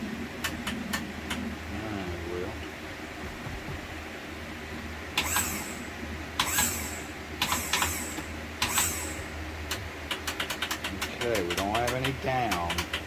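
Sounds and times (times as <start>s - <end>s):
trim pump motor bursts: 5.2s - 9.4s
solenoid clicks: 9.7s - 13.0s.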